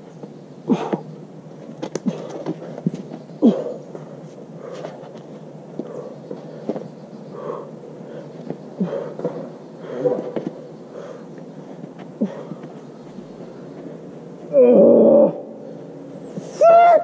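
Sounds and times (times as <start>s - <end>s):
climber breathing and grunting: 0.0s - 17.0s
sharp scuffs and taps: 1.6s - 3.3s, 10.2s - 10.6s.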